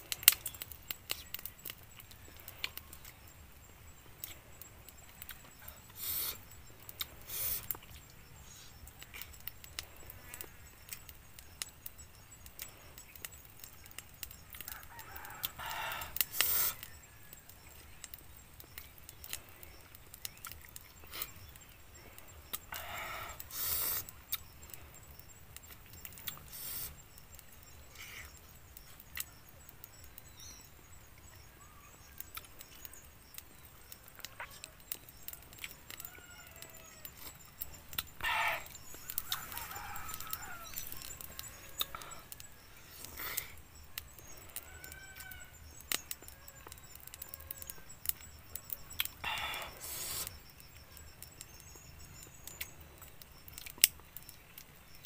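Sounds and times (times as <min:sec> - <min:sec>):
rooster crowing: 0:14.6 - 0:16.3, 0:35.4 - 0:37.4, 0:38.2 - 0:42.2, 0:44.5 - 0:48.0.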